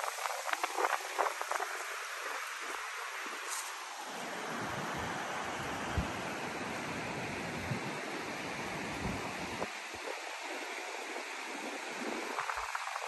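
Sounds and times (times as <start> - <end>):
river rushing over rocks: 0.0 - 13.0
wind buffeting microphone: 4.6 - 6.3, 7.0 - 10.2.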